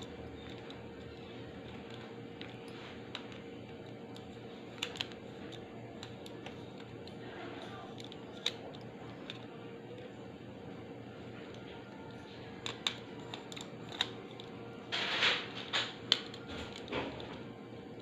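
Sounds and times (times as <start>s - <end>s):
screwdriver clicking on plastic: 0.0s - 10.0s, 11.4s - 14.6s, 15.6s - 17.4s
faint steady hum: 0.0s - 18.0s.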